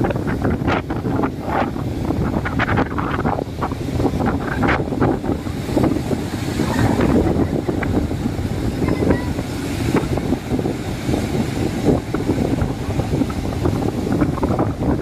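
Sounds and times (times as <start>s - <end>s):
waves breaking on shore: 0.0s - 15.0s
wind buffeting microphone: 0.0s - 15.0s.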